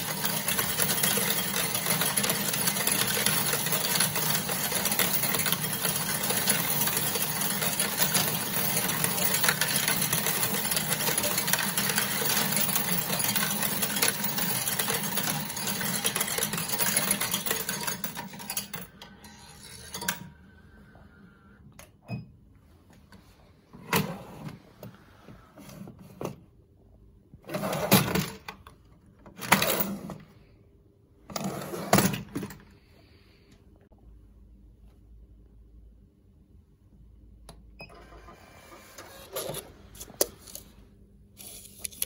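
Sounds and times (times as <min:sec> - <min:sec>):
coin bins clicking and knocking: 0:00.0 - 0:20.3
coins rattling through sorter: 0:00.0 - 0:20.3, 0:29.4 - 0:30.2
coin sorter motor: 0:00.0 - 0:20.4, 0:37.9 - 0:40.1.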